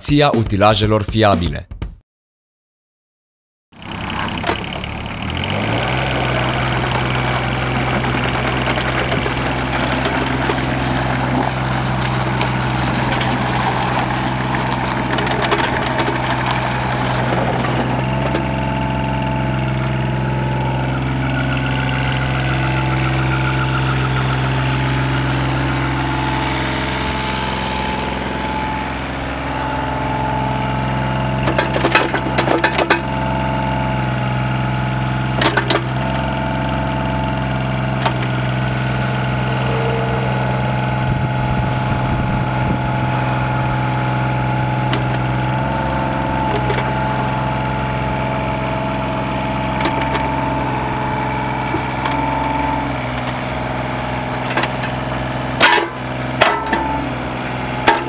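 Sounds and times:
diesel excavator engine running: 0:03.7 - 0:58.0
high steady whine: 0:39.4 - 0:43.7.

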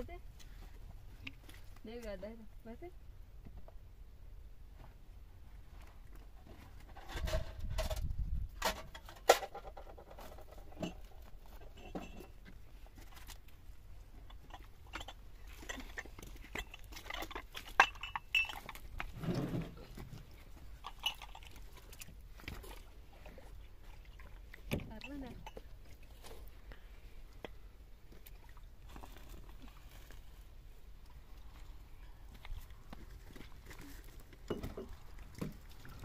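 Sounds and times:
wooden sticks clattering: 0:14.2 - 0:19.6, 0:20.8 - 0:22.8.

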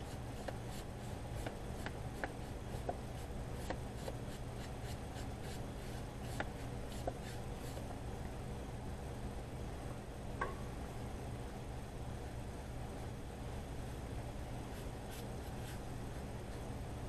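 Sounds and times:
steady low hum: 0:00.0 - 0:17.0
brush strokes on paper: 0:02.7 - 0:07.9, 0:14.7 - 0:15.9.

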